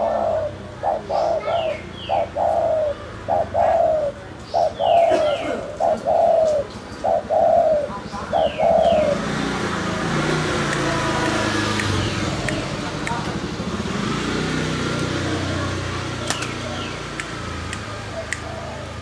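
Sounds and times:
dove cooing: 0.0 - 9.4, 17.9 - 19.0.

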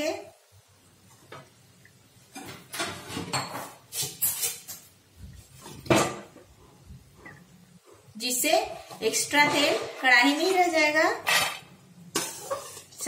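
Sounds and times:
metal skimmer scraping a metal pan: 11.2 - 12.9.

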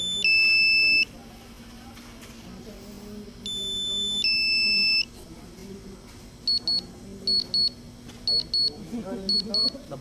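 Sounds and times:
remote controller warning beeps: 0.0 - 1.1, 3.4 - 5.1, 6.5 - 9.8.

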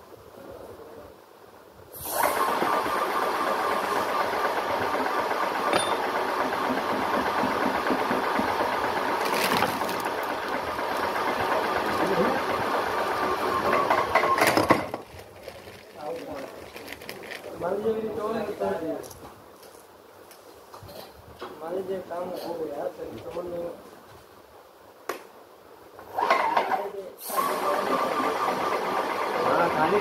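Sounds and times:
paint sprayer motor and pump: 2.0 - 14.3, 27.3 - 30.0.

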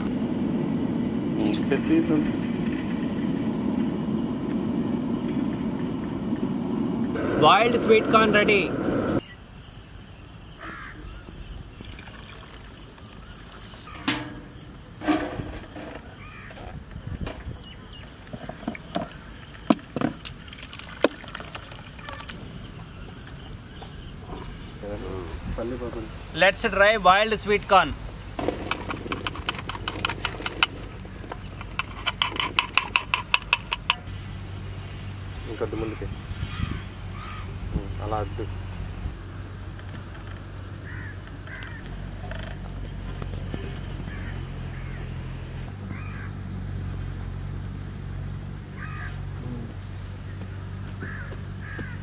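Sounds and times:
insects chirping: 0.0 - 52.0
water trickling: 11.7 - 14.3, 17.9 - 23.6
ladle knocking on metal pot: 14.0 - 15.3
ladle scooping corn from water: 18.3 - 22.4
corn kernels clicking into steel basin: 31.4 - 34.1.

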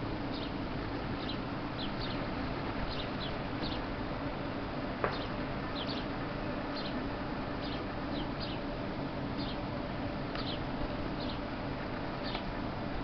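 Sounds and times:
steady background hum: 0.0 - 13.0
swallows chirping: 0.3 - 0.6, 1.2 - 3.9, 5.1 - 6.1, 6.7 - 7.0, 7.6 - 8.7, 9.4 - 9.6, 10.4 - 11.5, 12.2 - 12.4.

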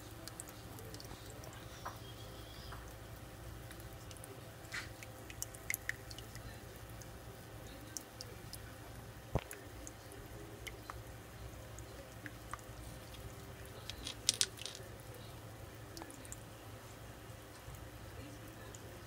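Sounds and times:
low steady hum: 0.0 - 19.0
turtle claws clicking on stones: 12.5 - 14.8.

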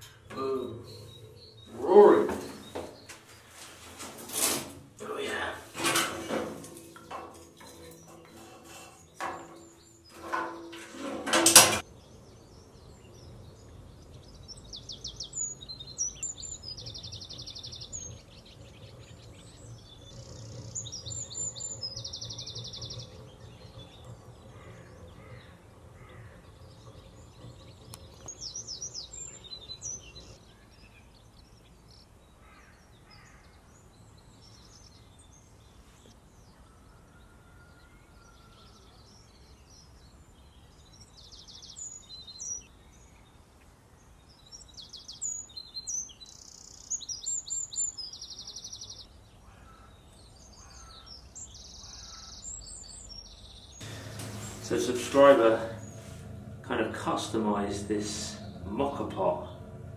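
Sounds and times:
birds chirping: 0.0 - 59.9
faint outdoor background noise: 0.0 - 59.9
faint low hum: 53.8 - 59.9.

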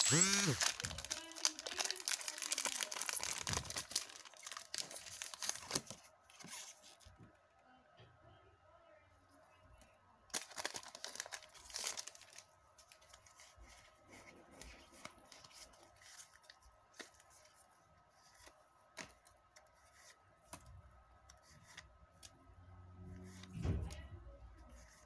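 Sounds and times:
foil wrapper ripping: 0.0 - 5.9, 10.3 - 12.5
wrapper and cards crinkling: 0.0 - 7.0, 10.3 - 17.6.

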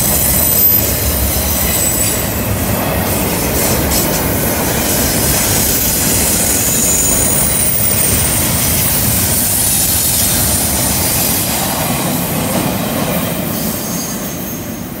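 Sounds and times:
train cars rumbling past: 0.0 - 15.0
wheel squeal: 5.8 - 9.8.

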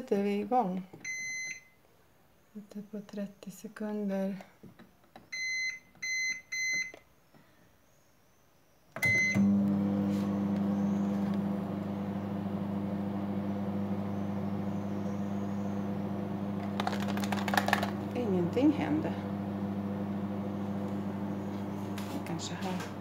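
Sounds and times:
microwave keypad beeping: 1.0 - 1.7, 5.3 - 7.0, 9.0 - 9.6
microwave oven humming: 9.0 - 23.0.

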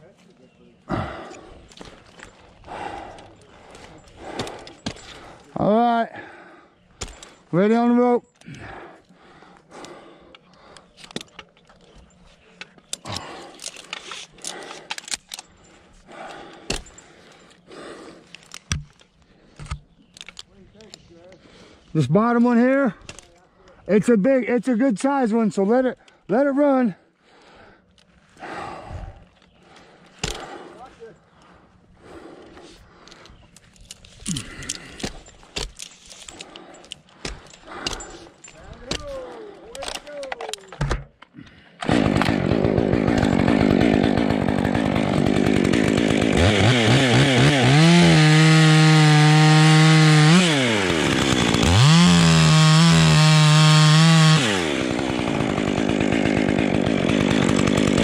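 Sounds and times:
metal carabiners clinking: 10.9 - 17.7, 18.3 - 21.1, 33.0 - 41.3.

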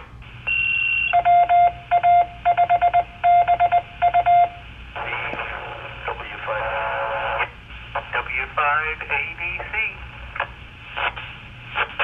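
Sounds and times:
morse code tone: 0.5 - 4.6
receiver hiss: 4.5 - 12.0.

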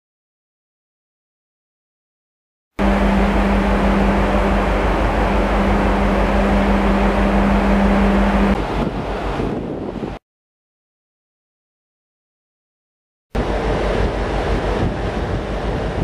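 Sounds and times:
ship machinery hum: 2.8 - 10.2, 13.4 - 16.0
wind on microphone: 2.8 - 10.2, 13.4 - 16.0.

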